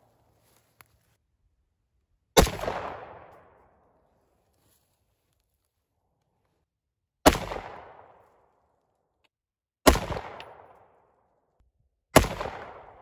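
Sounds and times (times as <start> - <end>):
rifle shots with echo: 2.4 - 3.8, 7.2 - 8.2, 9.8 - 11.0, 12.2 - 13.0.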